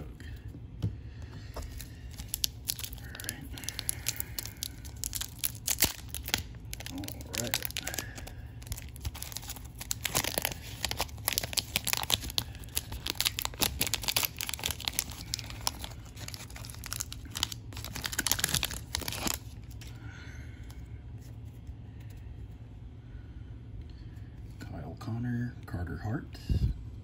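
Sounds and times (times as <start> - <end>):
foil wrapper crackling: 1.6 - 20.0
faint handling of cards: 20.6 - 22.7.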